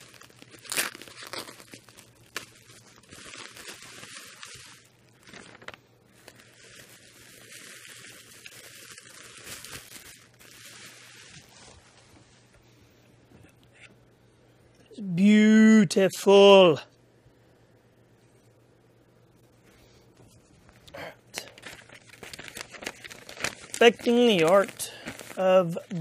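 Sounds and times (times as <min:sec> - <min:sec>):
tape ripping: 0:00.0 - 0:11.5, 0:21.4 - 0:25.4
bubble wrap crinkling: 0:00.0 - 0:12.5, 0:20.3 - 0:26.0.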